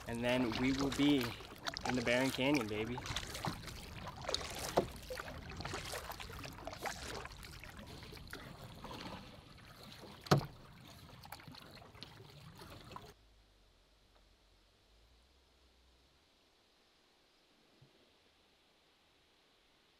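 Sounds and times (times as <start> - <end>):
paddle knocking on canoe: 0.0 - 7.3, 10.0 - 10.6
water dripping: 0.0 - 8.4
paddle splashing in water: 0.0 - 13.2.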